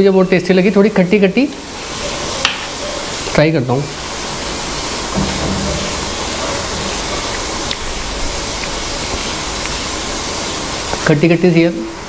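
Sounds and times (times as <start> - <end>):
steady rushing noise: 3.3 - 11.0.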